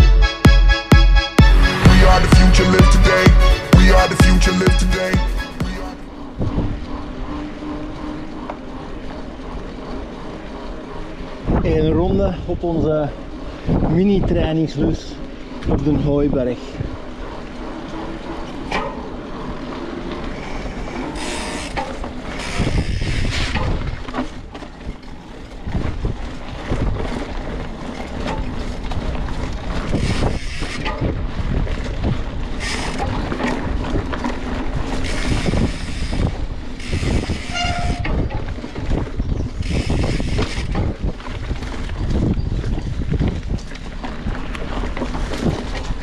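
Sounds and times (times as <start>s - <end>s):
bike rattling over bumps: 6.0s - 46.0s
wind rumbling on microphone: 6.2s - 46.0s.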